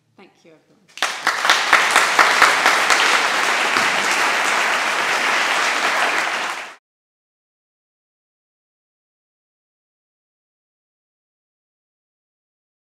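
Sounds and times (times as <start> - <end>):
audience applauding: 1.0 - 6.8.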